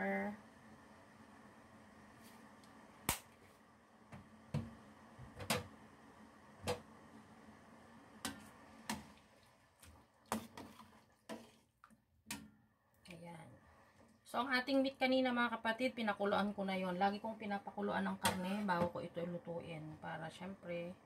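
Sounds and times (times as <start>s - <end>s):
ladle stirring broth: 8.2s - 12.1s.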